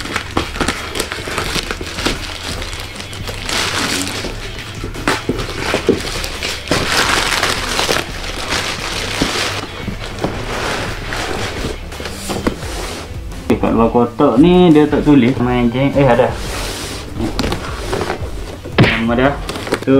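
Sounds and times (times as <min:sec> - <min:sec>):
plastic crinkling and tearing: 0:00.0 - 0:11.6, 0:19.4 - 0:19.9
background music: 0:00.0 - 0:19.9.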